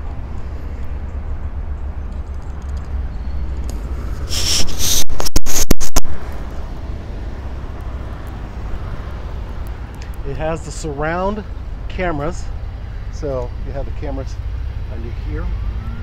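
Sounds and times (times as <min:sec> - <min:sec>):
scratchy microphone handling noise: 0:04.2 - 0:06.2.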